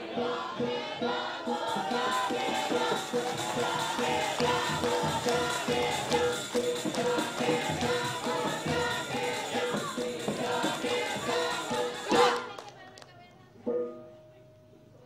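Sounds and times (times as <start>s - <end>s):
music with steady beat: 0.0s - 12.6s
group singing a cheer: 0.0s - 12.9s.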